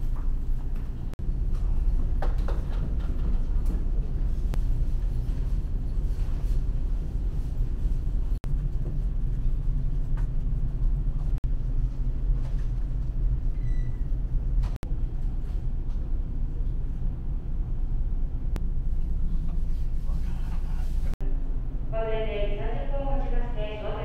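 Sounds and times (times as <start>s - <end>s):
ship engines rumbling: 15.6s - 24.0s.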